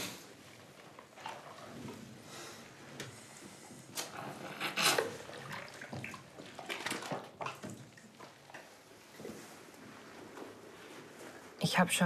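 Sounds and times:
bathwater splashing: 0:05.0 - 0:08.6.

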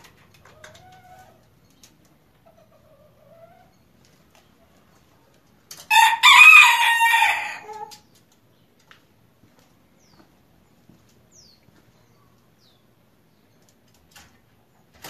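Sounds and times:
rooster crowing: 0:05.9 - 0:07.9.

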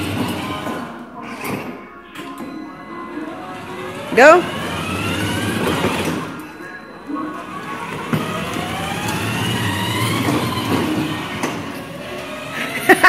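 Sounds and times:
toy car electric motor whining: 0:03.4 - 0:06.5, 0:07.4 - 0:13.0.

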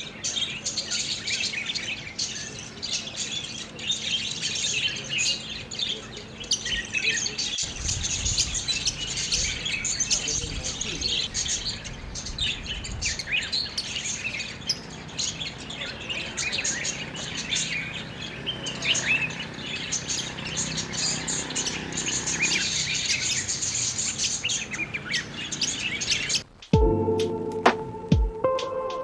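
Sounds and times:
budgerigars chirping and warbling: 0:00.0 - 0:26.7.

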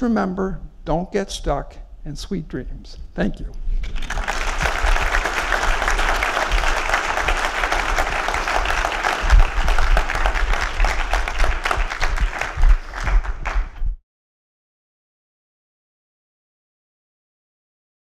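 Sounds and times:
audience applauding: 0:03.8 - 0:13.8.

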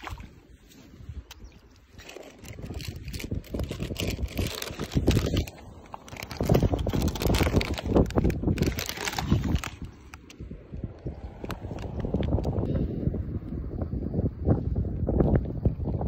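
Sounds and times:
wind buffeting microphone: 0:00.0 - 0:16.0
foil bag rustling: 0:02.0 - 0:09.9.

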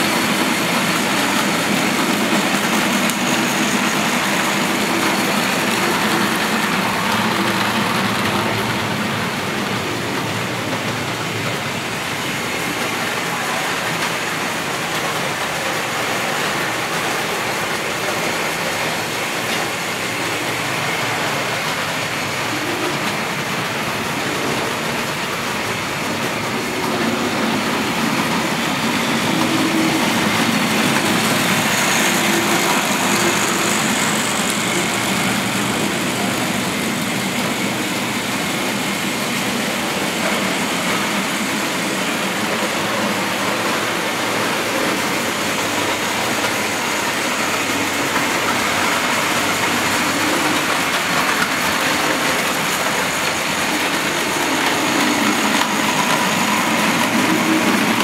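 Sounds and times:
model train motors whirring: 0:00.0 - 0:58.0
wheels rumbling on track: 0:00.0 - 0:58.0.

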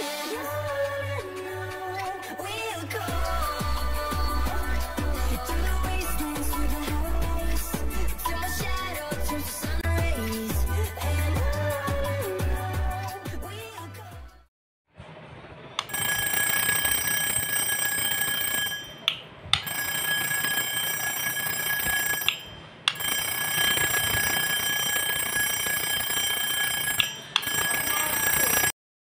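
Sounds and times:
electric bell ringing: 0:15.8 - 0:28.7.

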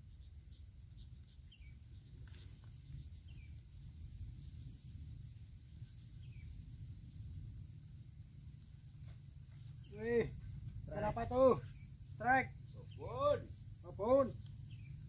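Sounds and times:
bird chirps: 0:00.0 - 0:03.7, 0:05.8 - 0:06.8, 0:09.0 - 0:15.0
high-pitched insect drone: 0:00.0 - 0:15.0.

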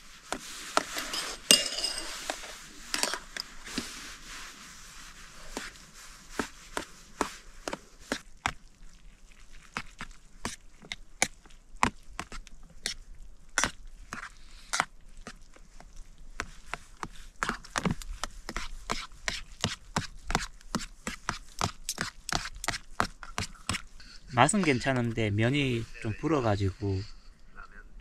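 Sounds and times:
chopsticks clinking on metal tin: 0:01.0 - 0:03.4.

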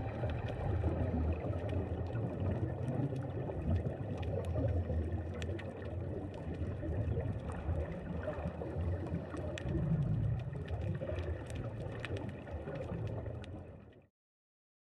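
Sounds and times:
sharp clicks underwater: 0:00.0 - 0:14.0
muffled underwater churning rumble: 0:00.0 - 0:14.1.

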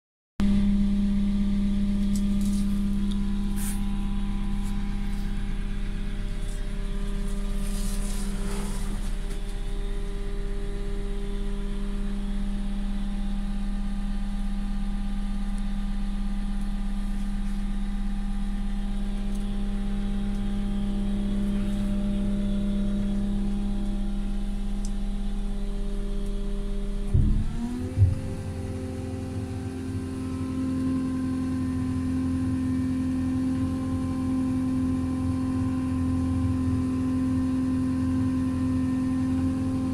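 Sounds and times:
diesel engine idling: 0:01.8 - 0:11.8.

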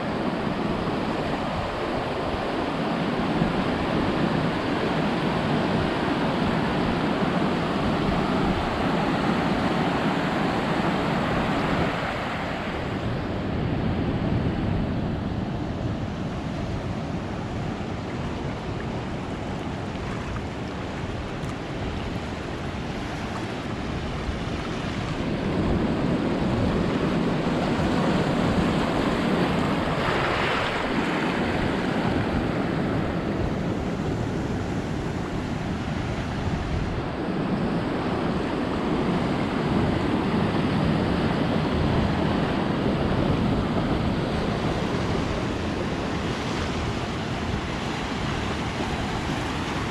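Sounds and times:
ocean surf breaking: 0:00.0 - 0:49.9
wind on microphone: 0:00.0 - 0:49.9.

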